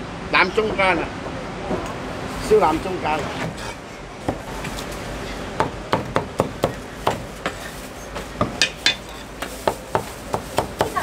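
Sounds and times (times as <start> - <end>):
cleaver chopping on wooden block: 5.6 - 7.6.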